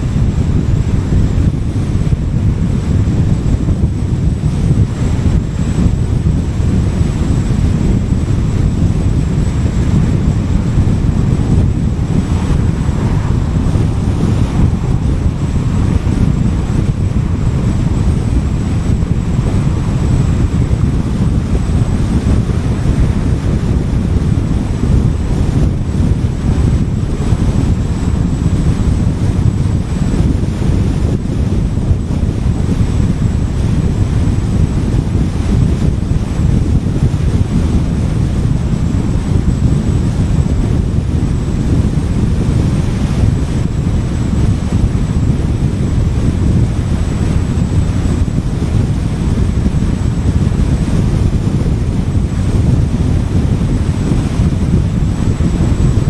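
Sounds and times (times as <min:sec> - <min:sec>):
car wind and road noise: 0:00.0 - 0:56.0.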